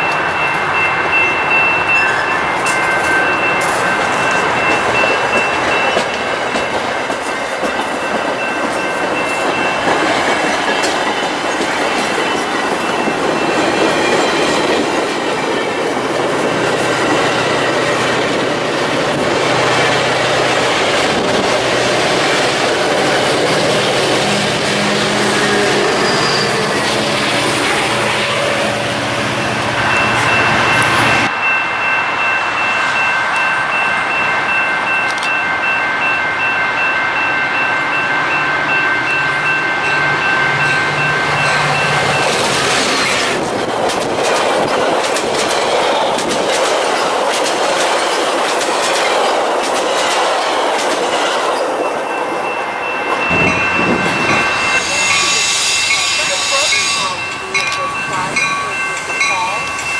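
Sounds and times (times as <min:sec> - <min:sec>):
steady high tones: 0:00.0 - 0:43.4, 0:51.4 - 0:59.9
diesel locomotive engine running: 0:14.8 - 0:31.3, 0:53.1 - 0:59.9
train wheels clacking over rail joints: 0:42.2 - 0:51.8.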